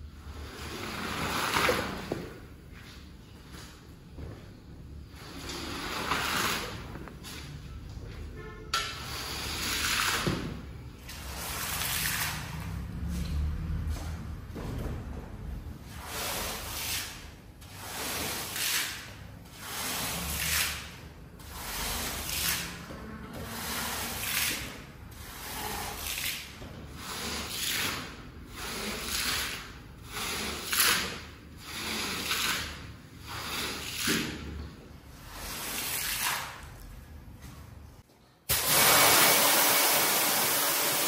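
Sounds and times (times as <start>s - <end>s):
tool stroking wet rug: 0.2s - 2.3s, 5.1s - 7.5s, 15.9s - 34.6s, 35.2s - 36.8s.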